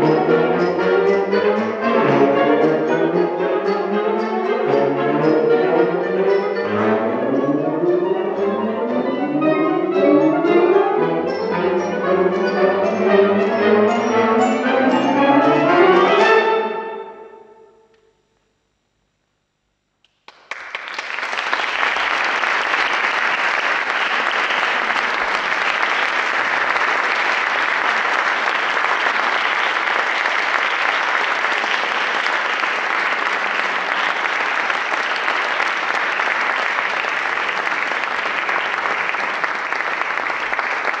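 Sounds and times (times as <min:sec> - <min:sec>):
audience applauding: 0:20.1 - 0:41.0.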